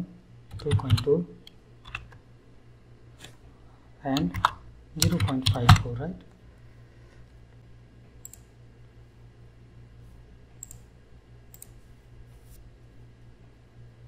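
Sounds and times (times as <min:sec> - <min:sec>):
low steady hum: 0:00.0 - 0:14.0
keyboard keystrokes: 0:04.2 - 0:05.9.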